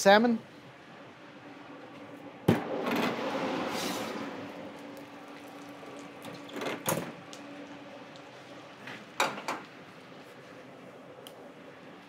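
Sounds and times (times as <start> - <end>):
oven humming: 0.1 - 12.0
rushing noise: 0.9 - 6.3.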